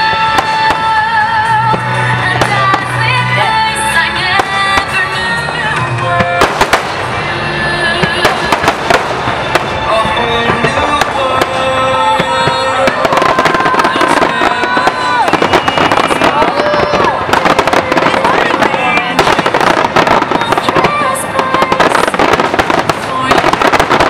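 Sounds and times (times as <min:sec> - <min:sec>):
music playing: 0:00.0 - 0:24.0
firework shells bursting: 0:08.0 - 0:24.0.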